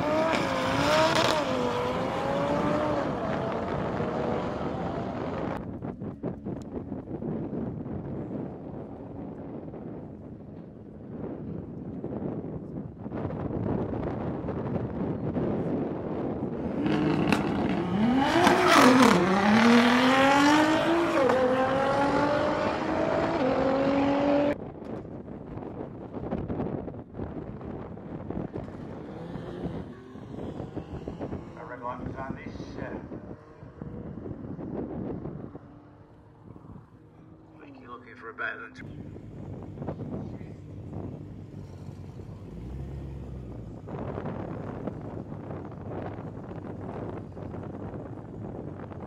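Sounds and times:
race cars accelerating: 0.0 - 5.6, 15.0 - 24.6, 27.8 - 49.0
wind buffeting microphone: 0.0 - 37.8, 38.8 - 49.0.

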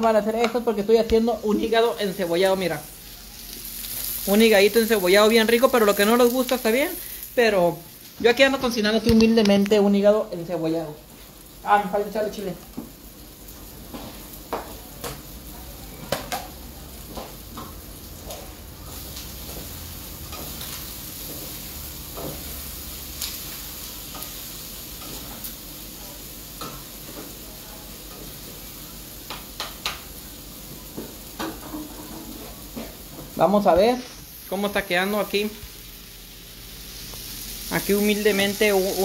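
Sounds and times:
liver and onions sizzling in skillet: 0.0 - 39.0.

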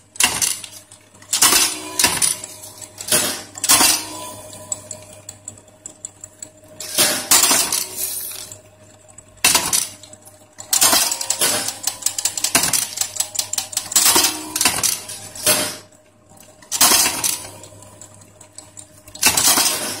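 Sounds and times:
machine metallic clanking: 0.2 - 5.2, 6.8 - 8.6, 10.6 - 15.8, 16.7 - 17.7, 19.2 - 20.0.

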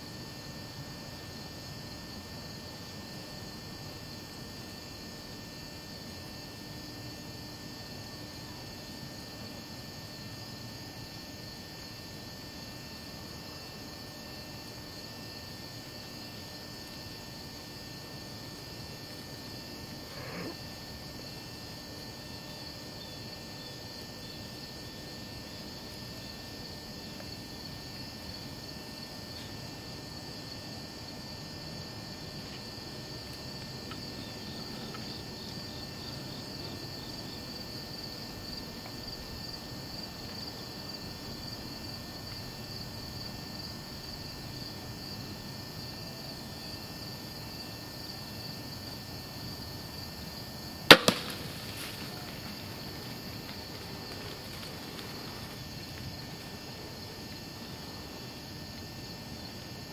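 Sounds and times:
insects chirring: 0.0 - 59.9
crossbow shot crack: 50.9 - 52.8
weaker crack: 50.9 - 55.5.

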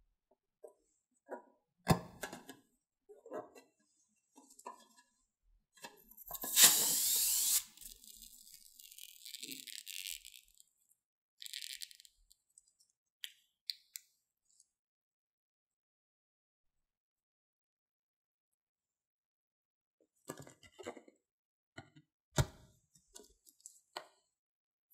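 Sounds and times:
loud rubbing of balloon: 6.5 - 7.7.

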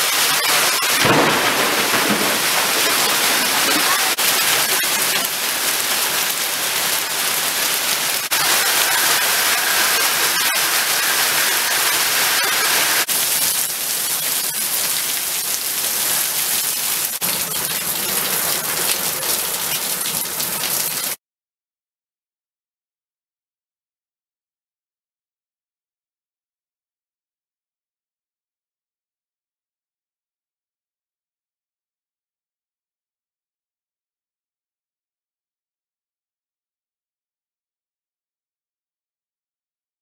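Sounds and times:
heavy rain pouring: 0.0 - 21.2.

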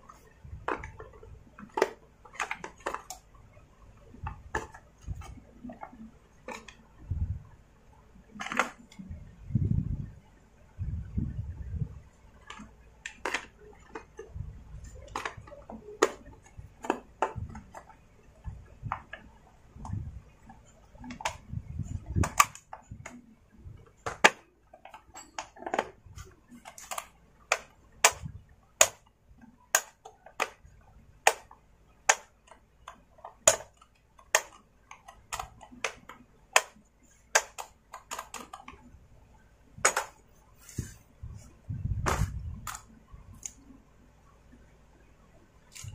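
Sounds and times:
plastic cover clicking into place: 8.4 - 9.0, 22.0 - 23.2, 29.7 - 38.8, 39.8 - 40.2.

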